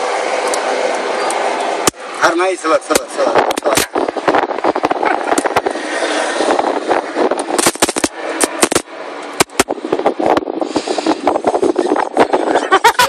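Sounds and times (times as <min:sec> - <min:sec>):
electric arc crackling: 0:07.4 - 0:09.7.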